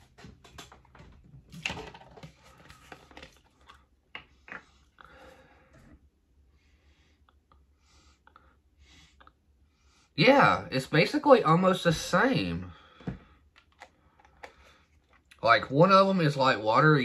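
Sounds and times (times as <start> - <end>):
plastic bottles clicking and knocking: 0.0 - 4.8.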